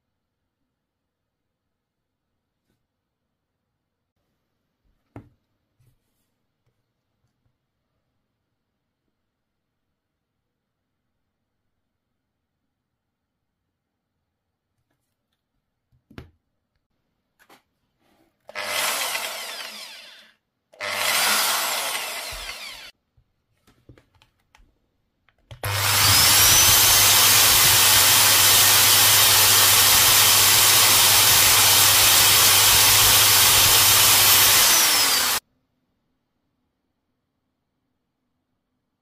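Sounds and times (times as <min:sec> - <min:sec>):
electric drill whining: 0:18.5 - 0:22.9, 0:25.6 - 0:35.4.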